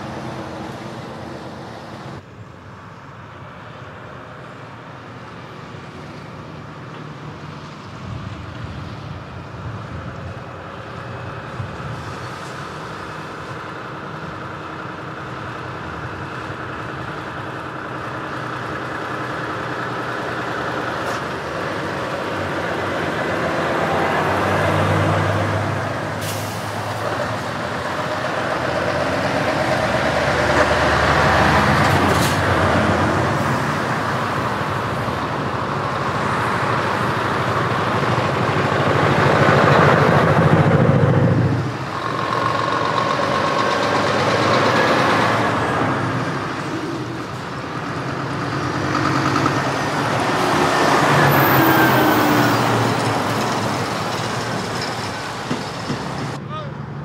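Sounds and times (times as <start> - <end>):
heavy trucks driving past: 0.0 - 57.0
air brake hisses: 26.2 - 26.9.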